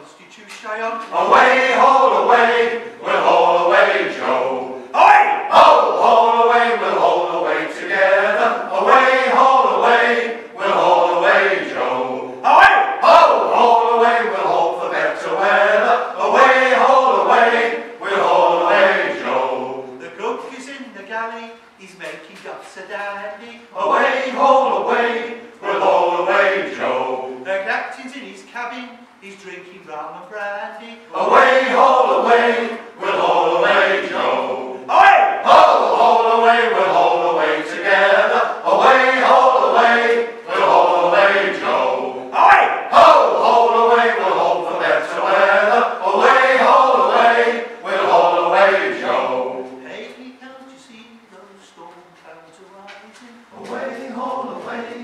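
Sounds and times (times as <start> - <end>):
male choir singing in harmony: 1.1 - 20.2, 23.7 - 27.7, 31.1 - 50.0, 53.6 - 55.0.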